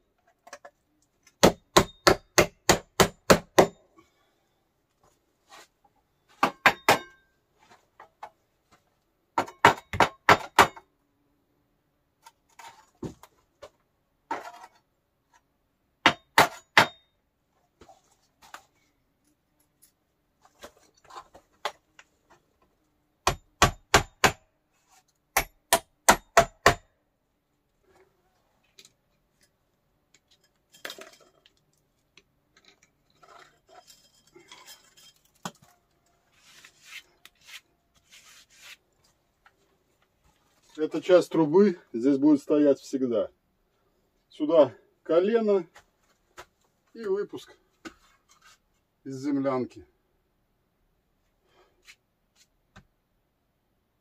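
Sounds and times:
metal scraping and rattling: 32.5 - 35.8.

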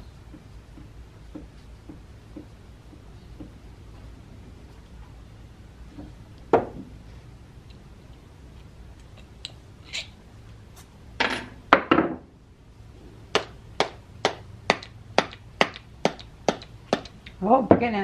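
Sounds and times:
metal housing set down on bench: 11.2 - 12.2.

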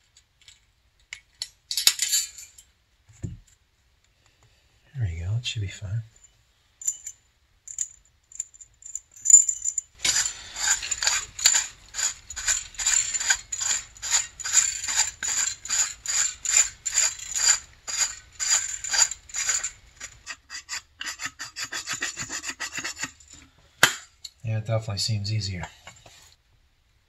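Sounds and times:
hand file rasping: 10.0 - 23.4.

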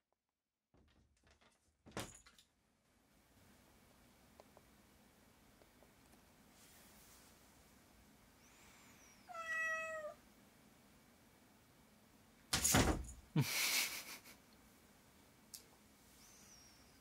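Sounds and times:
cat meowing: 9.2 - 10.2
cat thumping against wardrobe door: 12.5 - 13.2.

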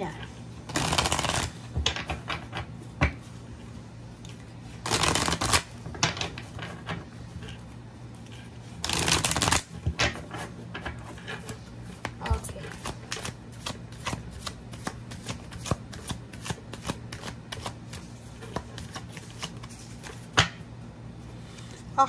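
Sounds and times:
cards being shuffled: 0.0 - 3.2, 4.2 - 7.6, 8.2 - 20.4
cards flicking and tapping: 0.7 - 2.4, 4.8 - 5.7, 8.8 - 10.1, 12.0 - 20.6.

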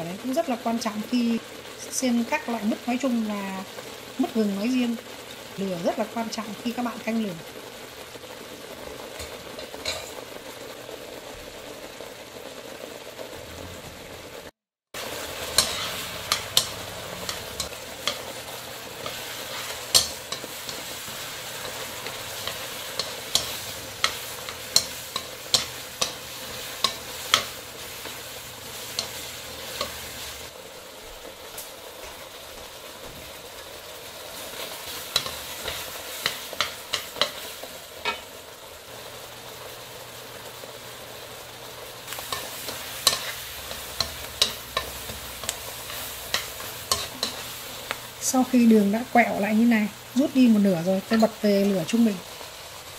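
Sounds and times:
sugar syrup boiling and sizzling: 0.0 - 52.9
chopsticks tapping a wok: 15.5 - 28.2, 28.9 - 30.2, 35.1 - 37.4, 42.1 - 48.0.

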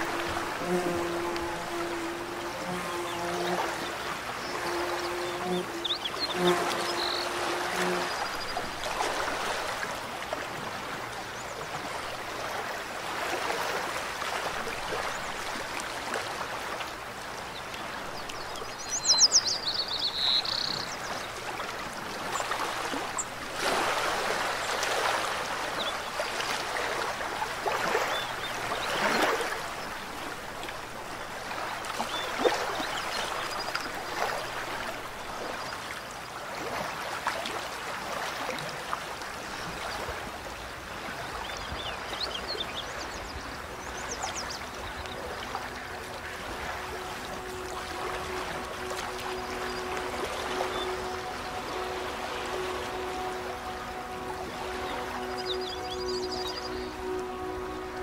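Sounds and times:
mountain stream running: 0.0 - 58.0
high chirping call: 43.1 - 58.0.

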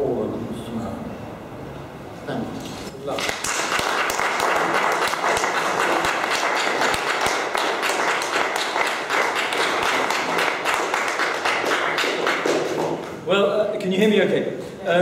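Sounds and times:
audience applauding: 3.1 - 13.1.

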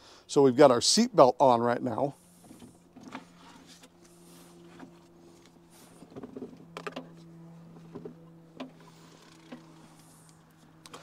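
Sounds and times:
faint steady hum: 0.0 - 11.0
handling clicks and rustling: 2.4 - 11.0.

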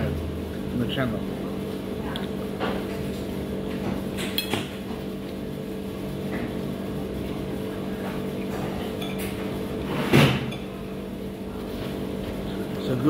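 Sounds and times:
low restaurant hum: 0.0 - 13.0.

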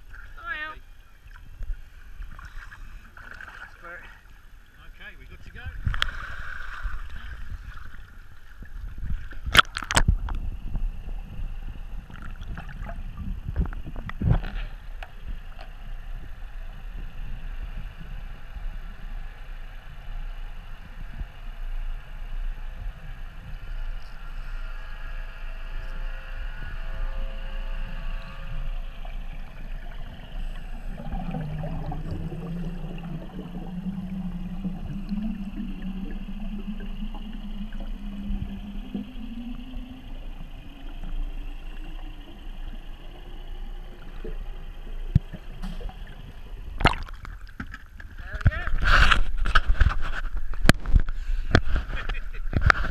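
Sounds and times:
dull underwater rumble: 0.0 - 52.9
steady low hum: 0.0 - 52.9.

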